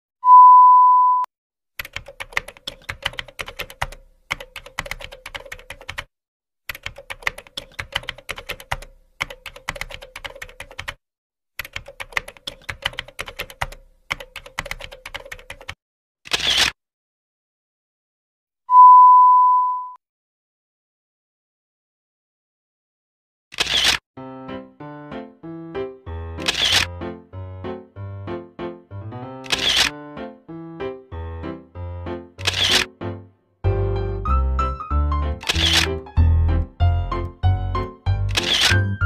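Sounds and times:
test-tone beep: 0.2 - 1.3, 18.7 - 20.0
rapid typing key clicks: 1.8 - 6.1, 6.7 - 11.0, 11.6 - 15.8.

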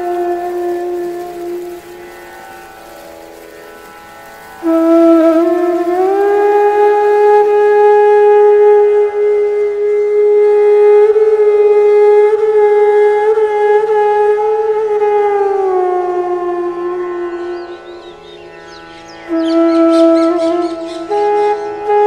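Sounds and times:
wind instrument long note: 0.0 - 22.0.

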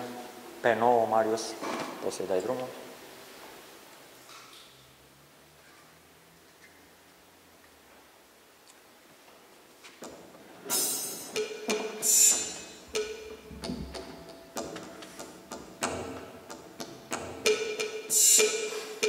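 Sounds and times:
percussion hits: 10.0 - 19.0.

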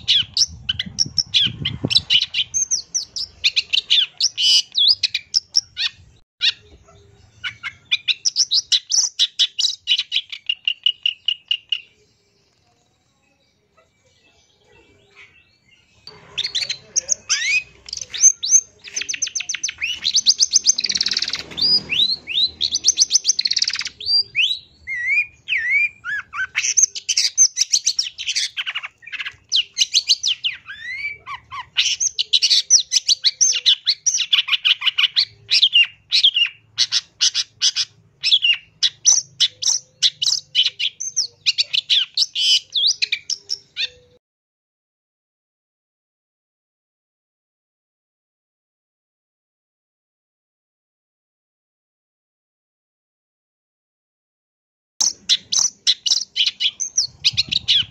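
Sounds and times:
shrike singing chattering song: 16.0 - 44.2, 55.0 - 57.9.

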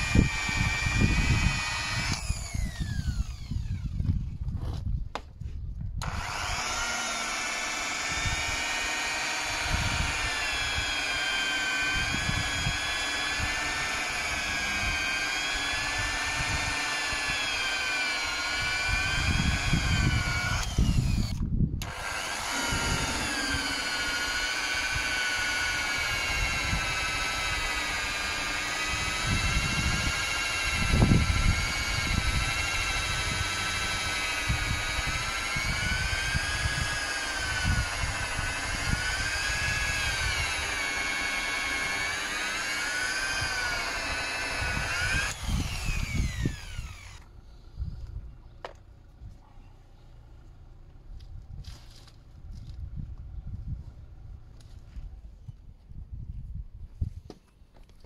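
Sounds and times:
electric polisher motor whine: 0.0 - 4.3, 6.0 - 47.3.

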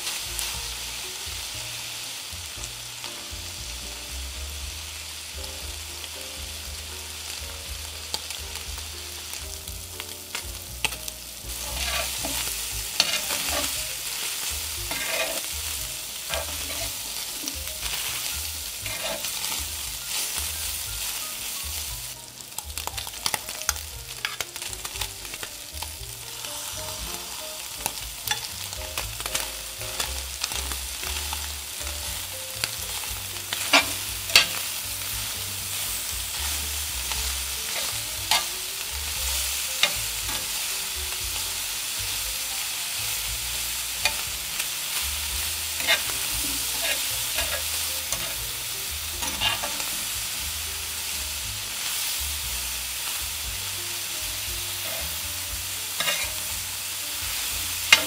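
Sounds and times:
meat sizzling in a pan: 0.0 - 58.0
utensil scraping a pan: 10.3 - 20.4, 33.0 - 34.8, 35.9 - 38.6, 45.6 - 48.5, 49.2 - 50.1, 54.8 - 55.2, 55.9 - 56.5, 57.8 - 58.0.

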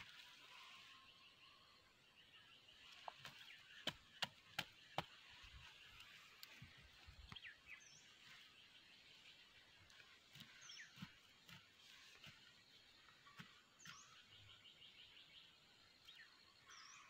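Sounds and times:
knife chopping into dry soil: 3.1 - 5.4, 10.2 - 14.3.

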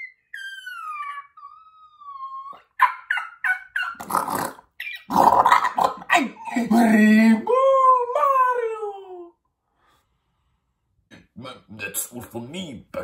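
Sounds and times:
man imitating dog yips and barks: 0.0 - 9.3
man imitating dog howling: 6.0 - 9.4.

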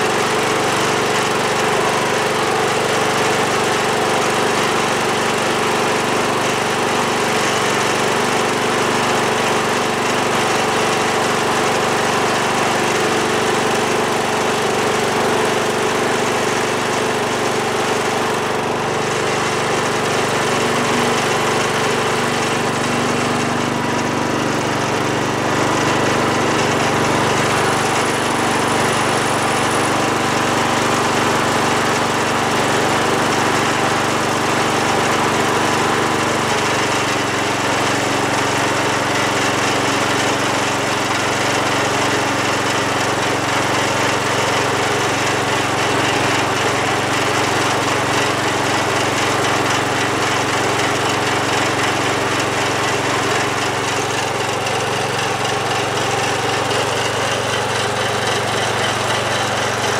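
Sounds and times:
garden tractor engine running: 0.0 - 59.9.

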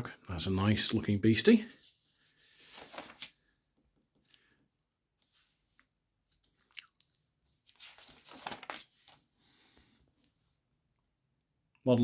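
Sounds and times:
magazine page turning: 2.4 - 3.5, 7.6 - 9.3.

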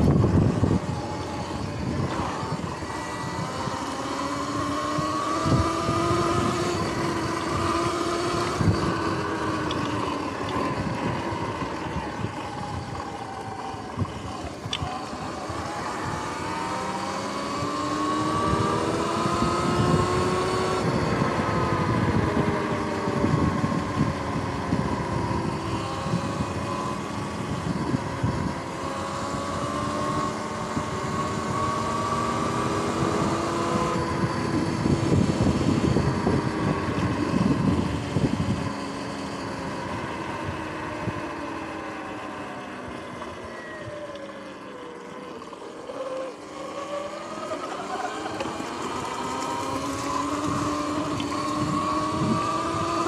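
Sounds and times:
wind buffeting microphone: 0.0 - 44.2, 47.6 - 53.0
electric motor whining: 0.0 - 53.0.

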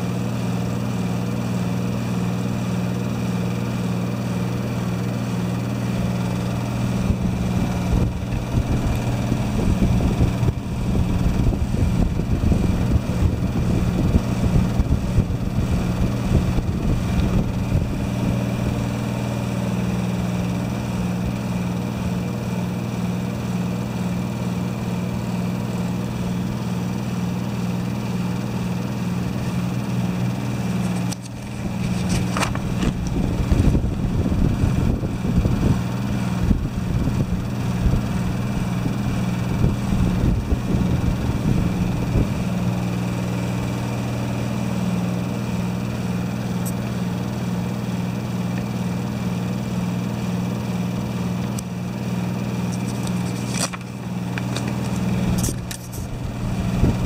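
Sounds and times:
pulsing low machine hum: 0.0 - 57.0
knocks and rustles of handling: 30.8 - 33.0.

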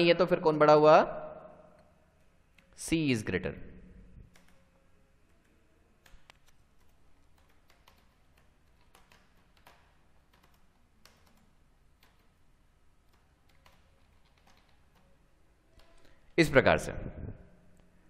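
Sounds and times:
faint keyboard typing: 4.2 - 16.4.

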